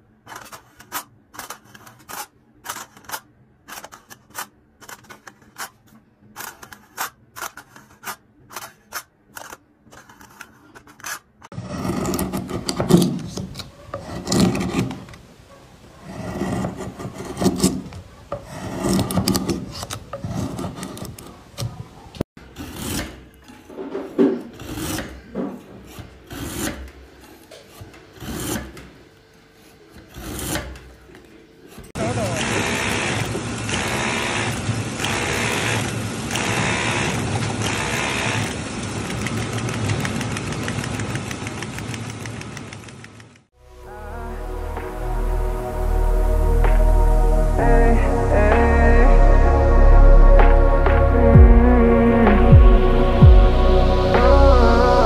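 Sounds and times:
craft knife cutting foil lid: 0:00.3 - 0:15.2, 0:30.0 - 0:31.0
carving tool rasping wood: 0:11.0 - 0:15.1, 0:15.9 - 0:21.7, 0:22.5 - 0:23.4, 0:24.4 - 0:28.8, 0:29.6 - 0:30.8.

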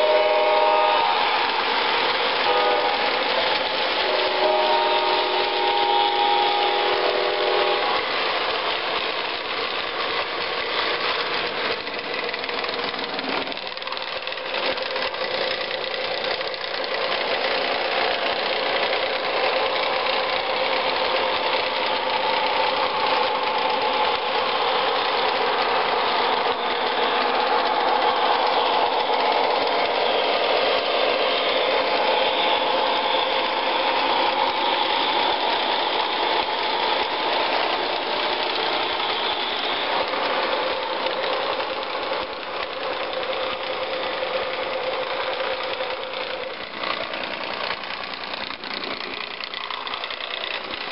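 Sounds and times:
train horn chord: 0:00.0 - 0:01.6, 0:02.4 - 0:08.2
diesel engine drone: 0:00.0 - 0:50.9
wheels rumbling on rails: 0:00.0 - 0:50.9.

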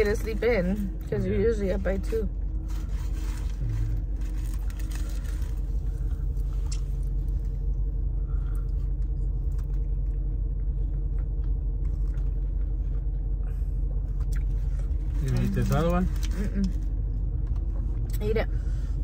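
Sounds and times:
car engine rumble inside cabin: 0:00.0 - 0:19.0
faint steady hum: 0:00.0 - 0:19.0
person chewing food: 0:08.4 - 0:15.1.

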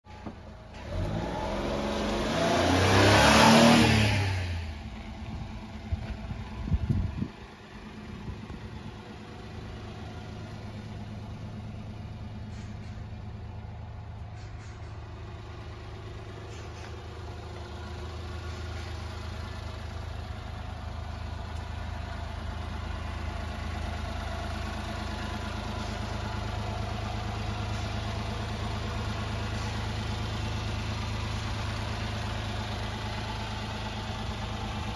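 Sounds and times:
engine idling: 0:00.1 - 0:03.6, 0:04.3 - 0:34.9
small truck engine revving: 0:00.7 - 0:04.9.

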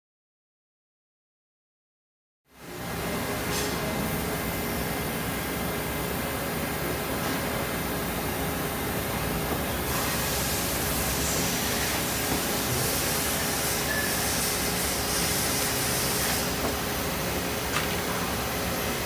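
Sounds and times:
machine hiss: 0:09.3 - 0:19.0.

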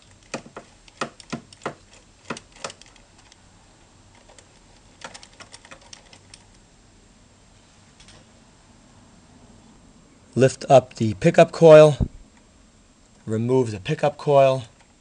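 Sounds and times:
small metal parts clicking: 0:00.0 - 0:03.4, 0:04.1 - 0:06.6.

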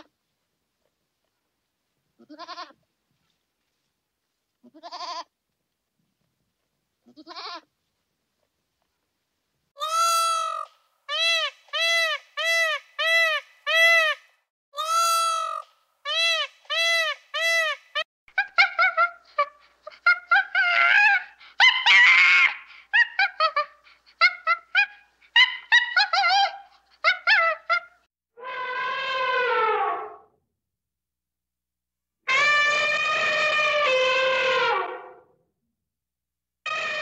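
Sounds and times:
animal calling: 0:32.3 - 0:35.2.

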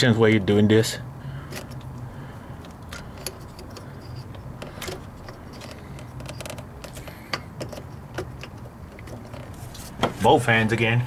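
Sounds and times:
small parts clicking and tapping: 0:01.5 - 0:09.5.

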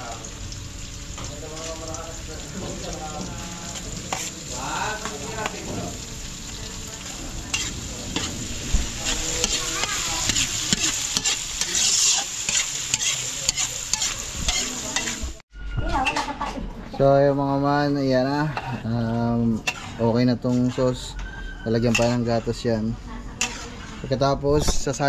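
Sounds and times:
sauce sizzling in a pan: 0:00.0 - 0:15.4
spoon scraping a pan: 0:03.7 - 0:05.6, 0:07.5 - 0:15.4, 0:18.5 - 0:24.8.

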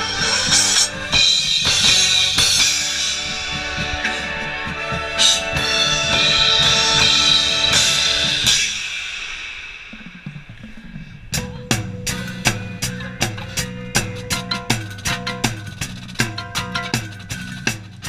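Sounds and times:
cymbal wash: 0:00.0 - 0:17.9
held chords: 0:11.4 - 0:18.0.

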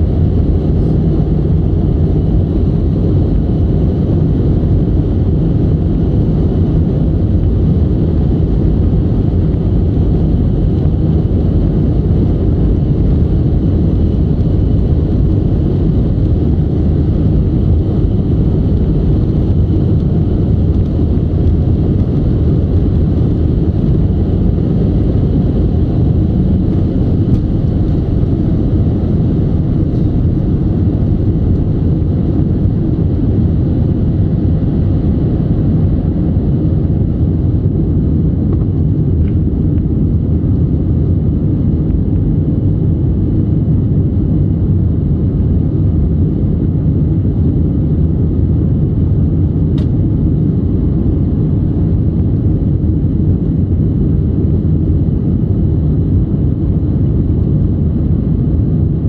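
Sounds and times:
jet engines rumbling: 0:00.0 - 0:59.0
rushing air: 0:08.5 - 0:36.0.

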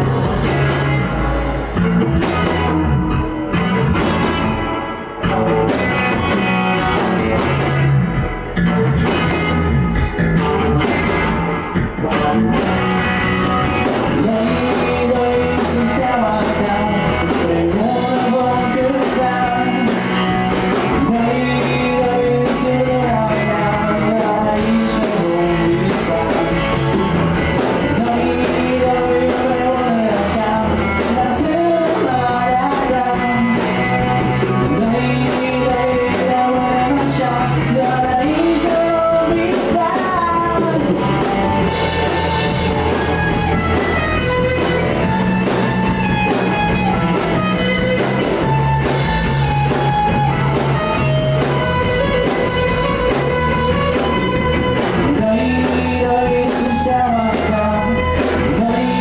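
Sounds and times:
bass guitar: 0:00.0 - 0:59.0
drum kit: 0:00.0 - 0:59.0
electric guitar: 0:00.0 - 0:59.0
man singing: 0:13.8 - 0:42.6, 0:54.2 - 0:59.0.

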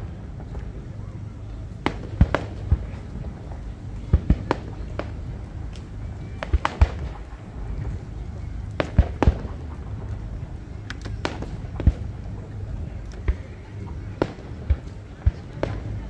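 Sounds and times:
fireworks bangs: 0:01.8 - 0:07.5, 0:08.7 - 0:10.1, 0:11.0 - 0:12.4, 0:13.2 - 0:16.0.

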